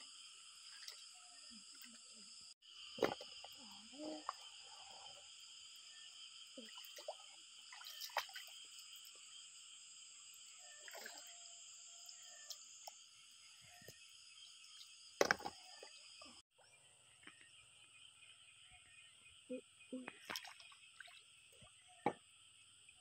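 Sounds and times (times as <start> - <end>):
insects droning: 0.0 - 23.0
water splashing in a stream: 6.6 - 9.2, 10.7 - 11.4, 20.0 - 21.8.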